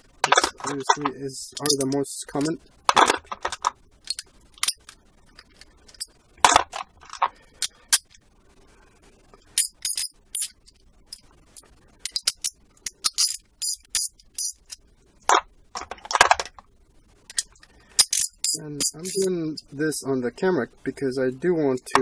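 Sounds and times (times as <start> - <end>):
metal sockets clicking and clinking: 0.3 - 8.2, 9.6 - 11.2, 12.0 - 14.8, 17.3 - 19.7.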